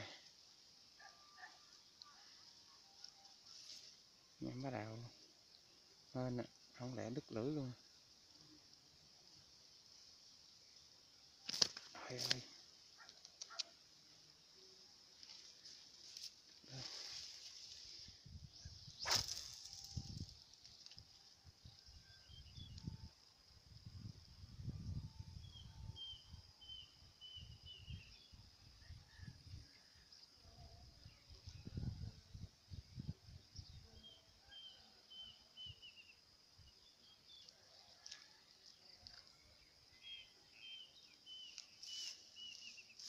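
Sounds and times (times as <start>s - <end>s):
high-pitched insect drone: 15.3s - 28.4s
wind rumble on microphone: 22.4s - 26.0s, 31.5s - 33.7s.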